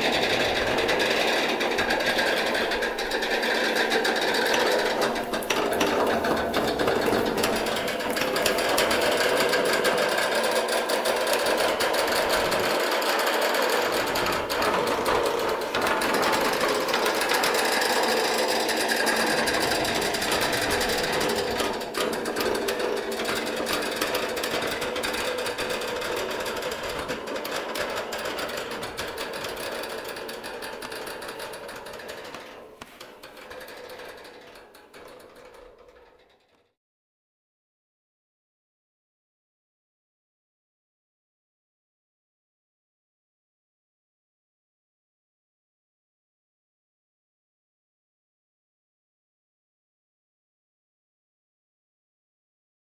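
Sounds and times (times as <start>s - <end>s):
machine-like rattling and clicking: 0.0s - 36.6s.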